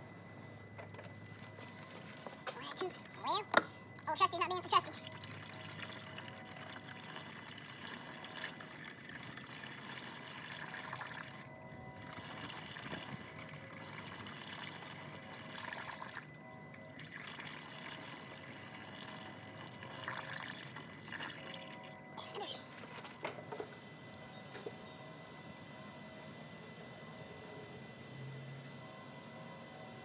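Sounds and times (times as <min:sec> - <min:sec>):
liquid pouring through a funnel: 0:04.8 - 0:22.0.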